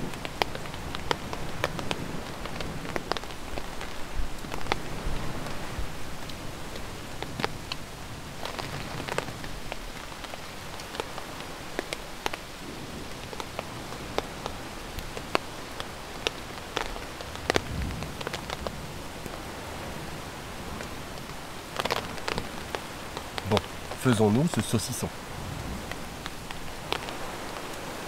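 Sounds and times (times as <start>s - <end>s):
rain on tent fabric: 0.0s - 28.0s.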